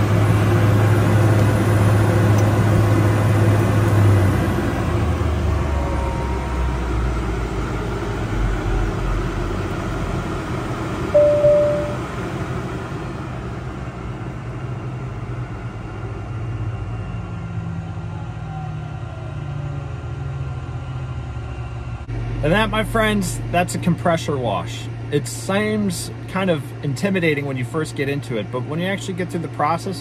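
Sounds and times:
jet engine idling: 0.0s - 30.0s
high beep: 11.2s - 12.0s.

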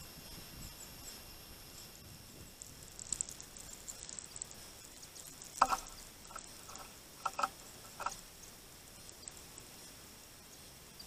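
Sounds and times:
birds pecking on feeder tray: 2.5s - 9.8s
faint high ticks: 2.5s - 9.8s.

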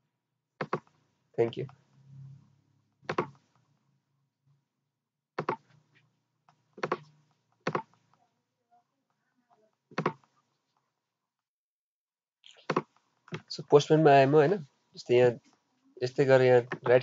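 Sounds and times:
computer mouse clicks: 6.8s - 7.1s.

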